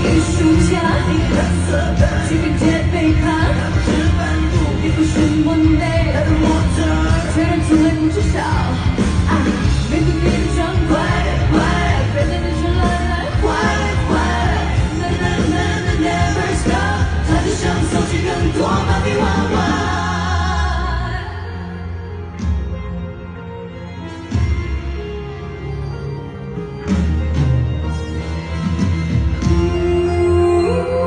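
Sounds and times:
woman and man singing duet: 0.0s - 21.7s, 29.5s - 31.0s
pop backing music: 0.0s - 31.0s.

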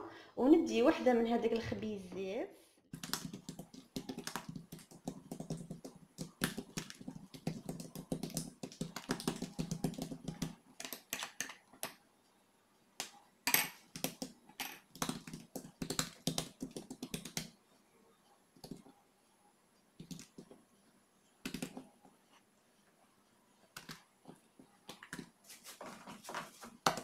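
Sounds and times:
hands patting dough: 2.9s - 10.6s, 14.0s - 17.5s.

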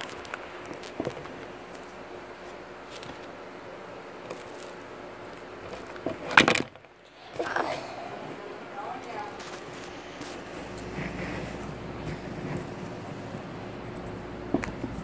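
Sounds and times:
faint room hum: 0.0s - 15.0s.

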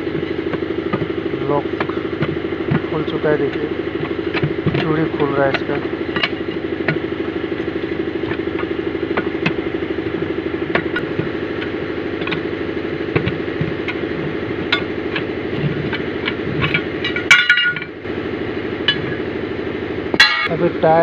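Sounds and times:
engine idling: 0.0s - 21.0s.

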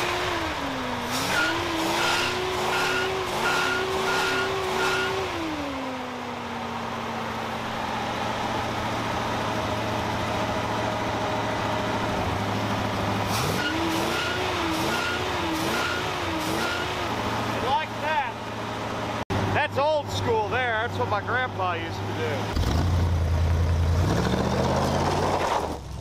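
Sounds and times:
truck engine idling with lope: 6.0s - 13.3s.

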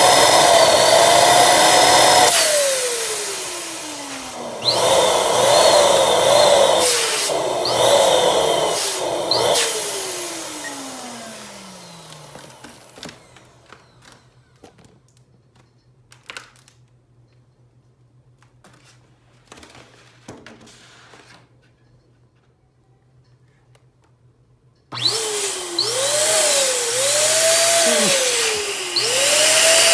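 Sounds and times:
balloon pump motor running: 25.0s - 29.9s.

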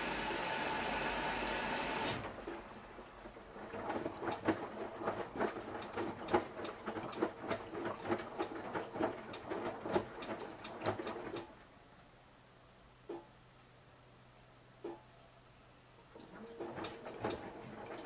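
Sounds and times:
washing machine drum tumbling clothes: 0.0s - 11.5s, 16.1s - 18.0s.

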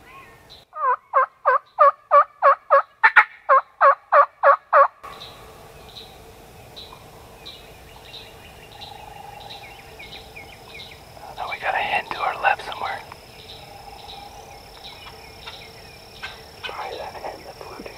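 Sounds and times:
insects: 0.0s - 17.9s
turkey yelps: 0.1s - 4.9s
faint bird chirps: 5.1s - 17.9s.

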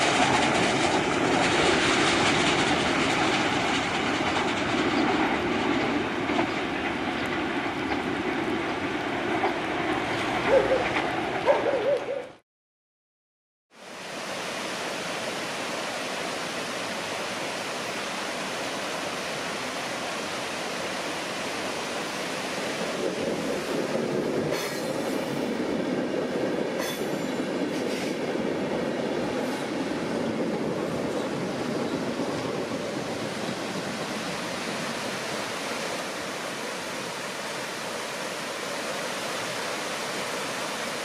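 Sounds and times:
train wheels clicking on track: 0.0s - 11.4s, 24.2s - 34.3s
train rolling over bridge: 0.0s - 11.5s, 16.2s - 41.0s.

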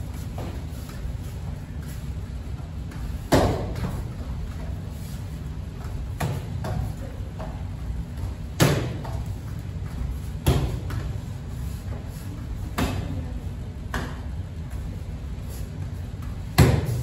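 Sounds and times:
kicks slapping a kicking paddle: 3.0s - 4.2s, 6.0s - 7.5s, 8.3s - 9.4s, 10.3s - 11.2s, 16.4s - 17.0s.

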